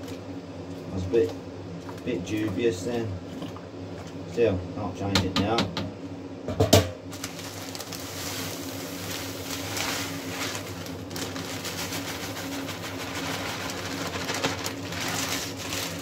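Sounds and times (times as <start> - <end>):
low steady hum: 0.0 - 16.0
plastic bag crinkling: 7.1 - 16.0
grain pouring: 7.2 - 16.0.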